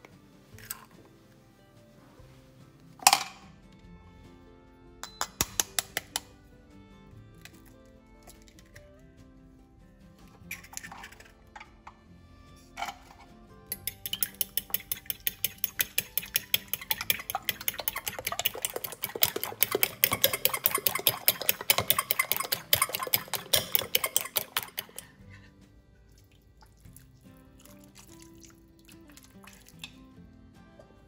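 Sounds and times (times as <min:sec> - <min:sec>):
fork beating eggs in a bowl: 0:05.4 - 0:06.3, 0:10.4 - 0:11.7, 0:13.7 - 0:25.5.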